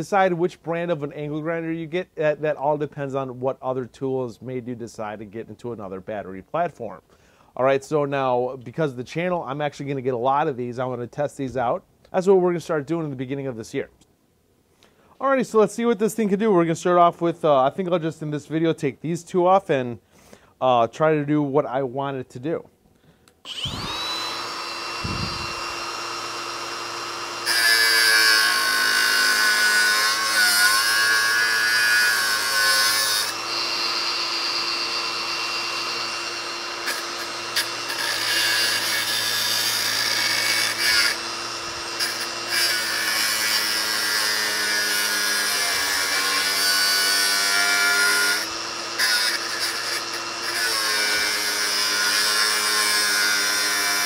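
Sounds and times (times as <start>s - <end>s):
angle grinder grinding steel: 23.5s - 54.0s.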